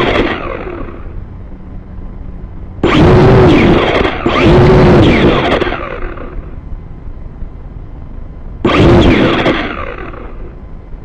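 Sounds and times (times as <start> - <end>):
drone motors revving: 0.0 - 1.2, 2.8 - 6.6, 8.6 - 10.6.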